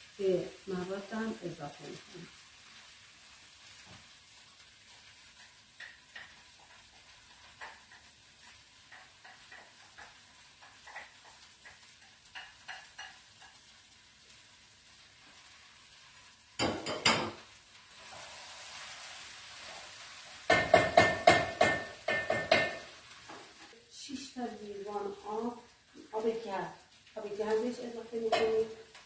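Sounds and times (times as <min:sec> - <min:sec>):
food sizzling: 0:00.0 - 0:29.0
spoon scraping and tapping pot: 0:05.2 - 0:13.7, 0:16.6 - 0:17.4, 0:20.4 - 0:23.5, 0:28.2 - 0:29.0.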